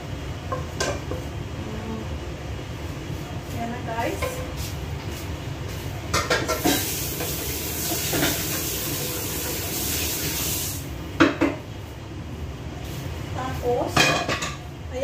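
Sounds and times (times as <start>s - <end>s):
dishes clattering in sink: 6.1s - 8.8s, 14.0s - 14.6s
tap water running: 6.5s - 10.9s.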